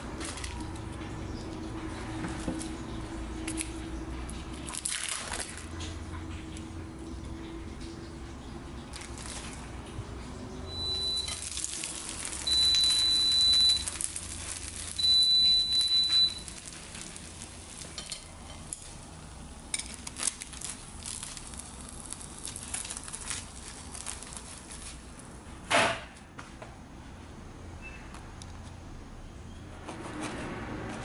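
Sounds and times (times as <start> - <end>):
fried food crackling and sizzling: 0.0 - 25.6
long high beeps: 12.5 - 13.9, 15.0 - 16.5.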